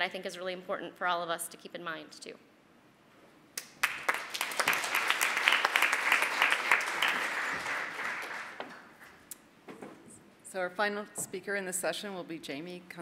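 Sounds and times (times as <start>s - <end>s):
audience applauding: 3.6s - 9.2s.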